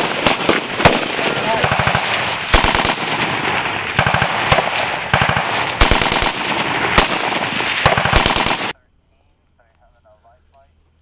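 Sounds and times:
single gunshots: 0:00.0 - 0:08.8
machine gun bursts: 0:01.6 - 0:03.1, 0:04.0 - 0:08.7.

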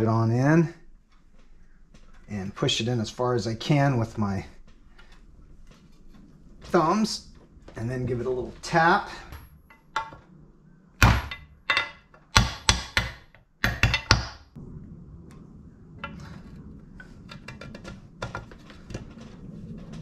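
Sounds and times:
faint low hum: 0:00.0 - 0:12.7, 0:13.3 - 0:20.0
hammer tapping metal part: 0:11.0 - 0:14.4.

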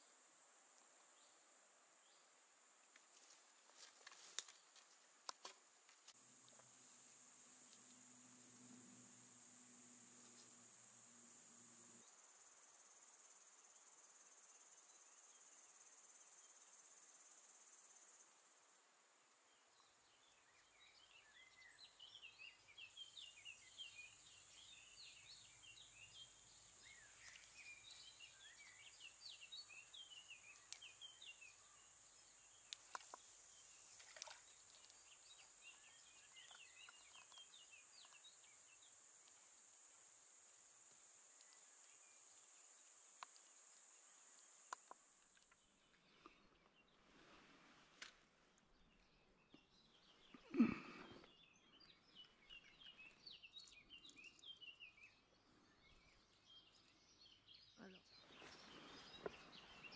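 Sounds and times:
small birds chirping: 0:19.4 - 0:47.4, 0:48.0 - 0:59.9
faint clicks: 0:30.4 - 0:31.0, 0:40.8 - 0:42.0, 0:42.6 - 0:45.6.

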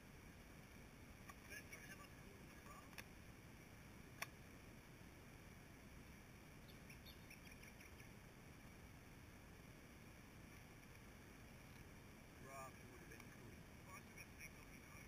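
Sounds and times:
faint high chirps: 0:06.6 - 0:08.2.

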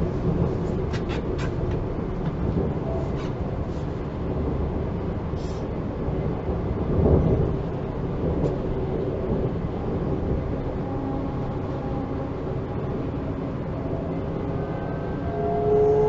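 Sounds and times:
train bump: 0:00.0 - 0:04.0
train wheels rumbling on track: 0:00.0 - 0:16.0.

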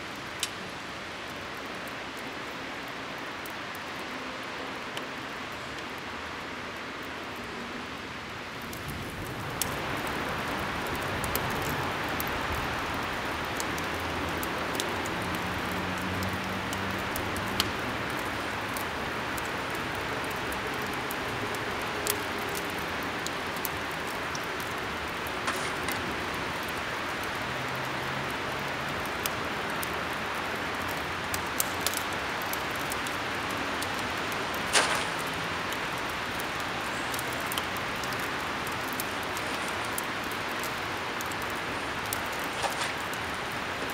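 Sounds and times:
fire crackles and pops: 0:00.0 - 0:43.9
fire hissing in metal barrel: 0:23.7 - 0:26.6.

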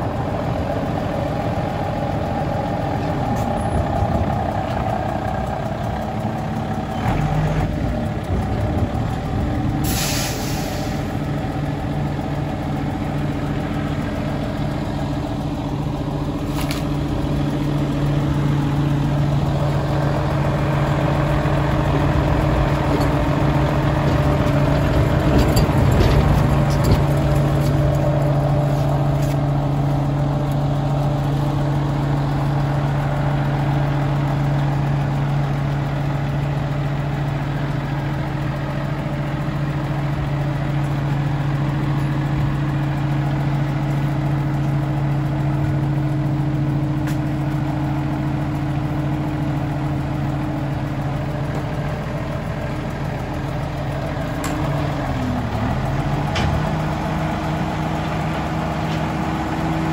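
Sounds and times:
diesel engine idling: 0:00.0 - 0:59.9
air hiss: 0:09.8 - 0:11.1.

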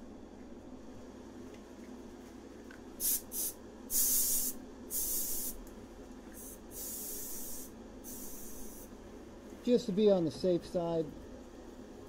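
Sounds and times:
exhaust fan humming: 0:00.0 - 0:12.0
aerosol can spraying: 0:03.0 - 0:05.6, 0:06.4 - 0:08.9.

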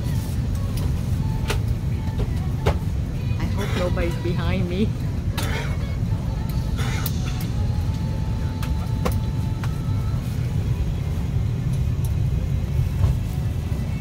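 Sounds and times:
airliner cabin rumble: 0:00.0 - 0:14.0.

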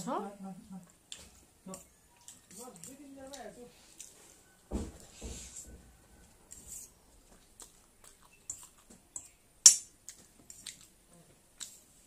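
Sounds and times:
chewing noodles: 0:07.3 - 0:09.4.

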